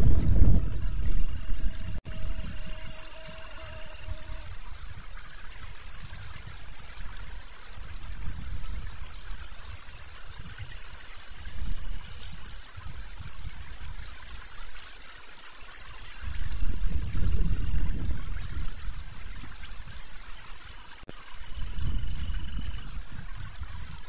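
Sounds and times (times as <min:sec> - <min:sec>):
gusty low rushing noise: 0:00.0 - 0:02.7.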